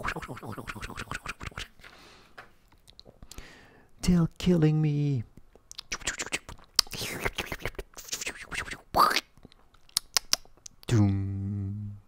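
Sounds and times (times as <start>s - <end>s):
wet mouth clicks and spitting: 0.0s - 1.8s, 5.4s - 10.9s
rasping hiss from mouth: 5.9s - 8.9s.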